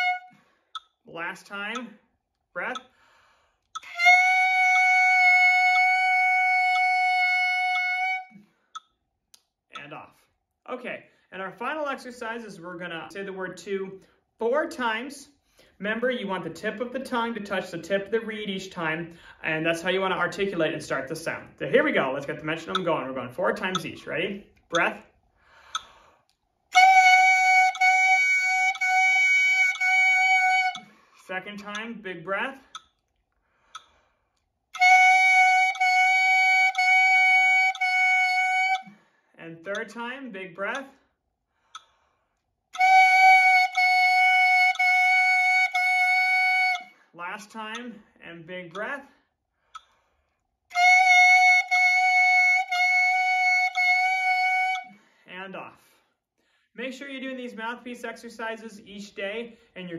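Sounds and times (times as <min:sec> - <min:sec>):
squawky clarinet notes: 0:00.0 - 0:00.4, 0:03.8 - 0:08.4, 0:26.7 - 0:30.9, 0:34.8 - 0:38.9, 0:42.8 - 0:46.9, 0:50.7 - 0:54.9.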